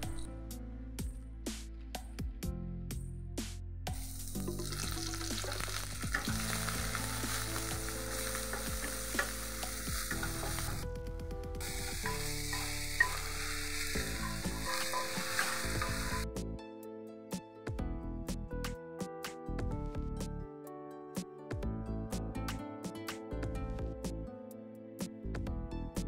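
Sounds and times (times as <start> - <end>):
food sizzling in hot oil: 4.0 - 10.9, 11.6 - 16.2.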